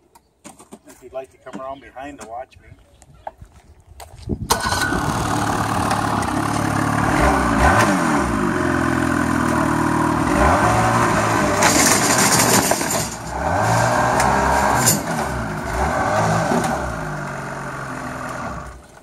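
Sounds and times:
snowmobile engine revving: 4.5s - 18.8s.

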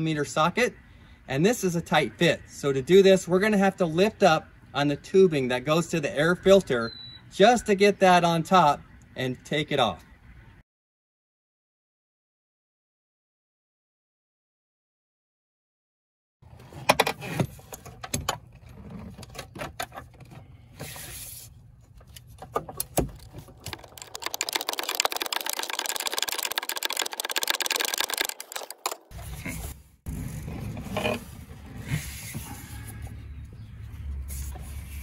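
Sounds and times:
hand ratchet clicking: 23.6s - 29.1s.

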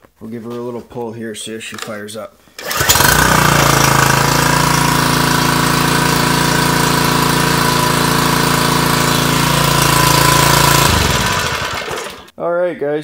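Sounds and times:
pressure washer engine running: 2.6s - 12.3s.

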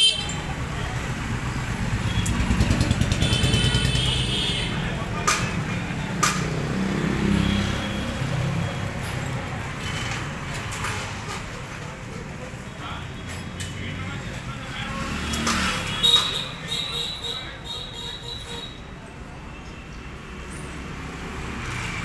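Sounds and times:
vehicle engine rumbling: 0.2s - 16.5s.

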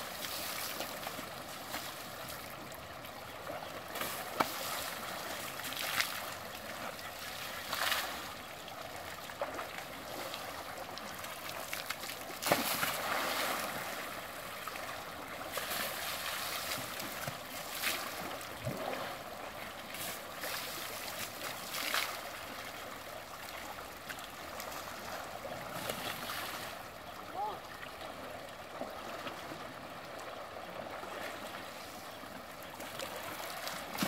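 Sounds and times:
water splashing: 0.0s - 2.6s, 3.4s - 22.6s, 32.8s - 34.0s
river water flowing: 0.0s - 34.0s.

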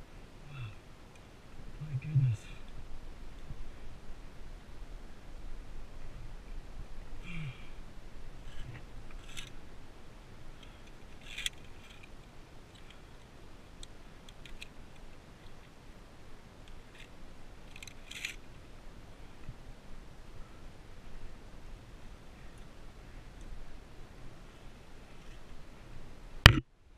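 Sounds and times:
carabiners clicking on steel cable: 9.2s - 9.6s, 10.7s - 12.2s, 16.9s - 18.4s.

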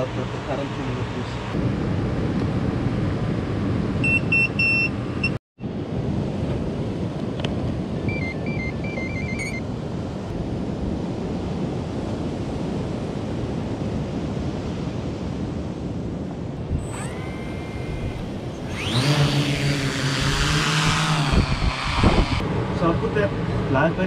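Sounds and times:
short electronic beeps: 4.0s - 5.4s, 8.1s - 9.6s
wind on microphone: 5.6s - 24.0s
surf on beach: 9.6s - 24.0s.

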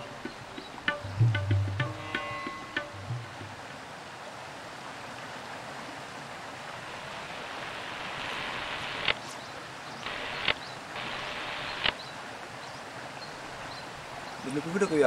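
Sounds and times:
flowing river water: 0.0s - 15.0s
music note: 1.0s - 3.5s.

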